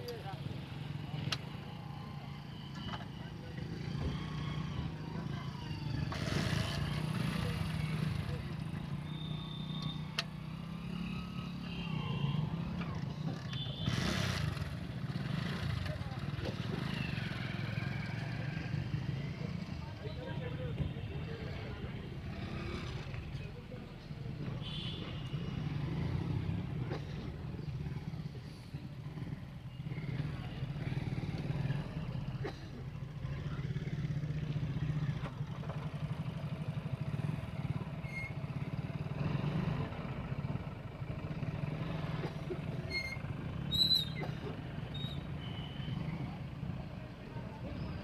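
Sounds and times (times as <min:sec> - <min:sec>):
small motorcycle engine: 0:00.1 - 0:20.0, 0:22.2 - 0:23.4.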